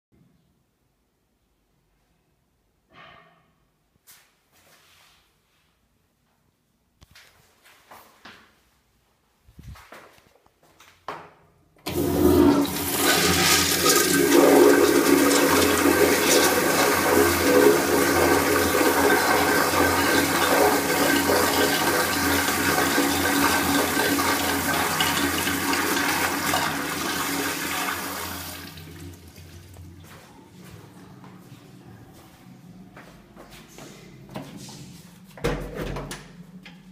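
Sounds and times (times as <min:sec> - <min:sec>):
urinal flush click: 0:11.9 - 0:29.9
urinal water rushing: 0:11.9 - 0:30.0.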